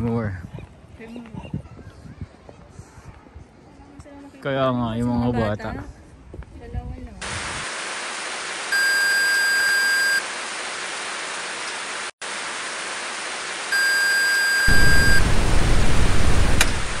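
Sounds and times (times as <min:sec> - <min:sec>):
tv static hiss: 0:07.2 - 0:17.0
high steady beep: 0:08.8 - 0:10.2, 0:13.8 - 0:15.3
low rumble: 0:14.7 - 0:17.0.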